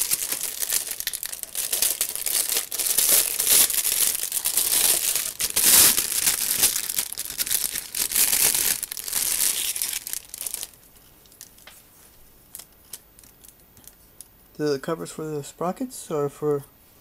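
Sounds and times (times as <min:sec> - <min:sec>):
plastic bags crinkling: 0:00.0 - 0:11.7.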